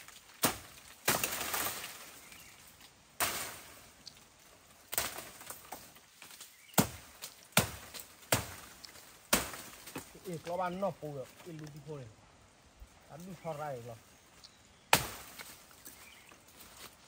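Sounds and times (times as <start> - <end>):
dry bamboo leaves rustling: 0.0 - 12.1, 12.7 - 17.0
sharp chopping knocks on bamboo: 0.4 - 1.8, 6.7 - 10.1, 14.9 - 15.5.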